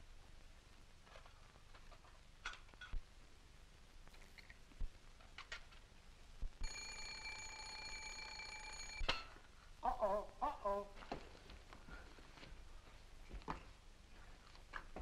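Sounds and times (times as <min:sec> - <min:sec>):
alarm clock bell ringing: 0:06.6 - 0:09.0.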